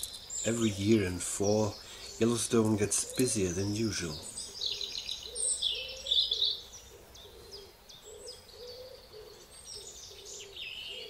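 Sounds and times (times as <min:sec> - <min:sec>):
forest birds chirping: 0:00.0 - 0:11.0.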